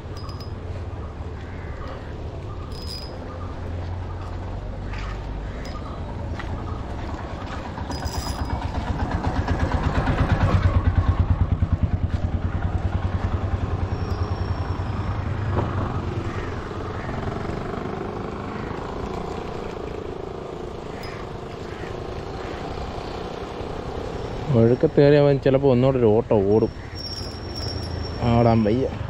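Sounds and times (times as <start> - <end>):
vehicle engine passing by: 3.6 - 24.8.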